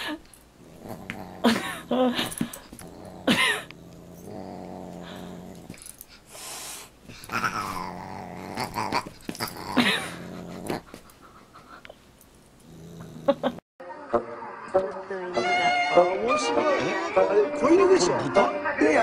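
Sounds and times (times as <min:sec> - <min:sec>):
dog growling: 0:00.6 - 0:06.0, 0:07.1 - 0:11.1, 0:12.6 - 0:13.6.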